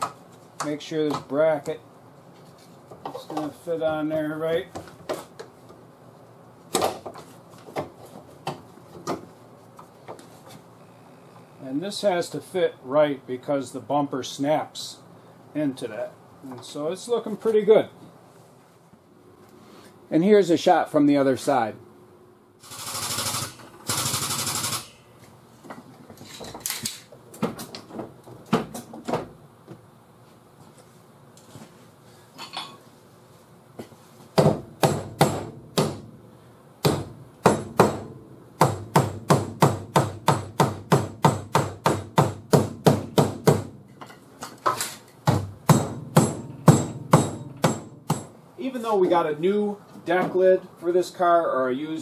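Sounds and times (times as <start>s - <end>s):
hammer striking metal: 45.3s - 48.4s.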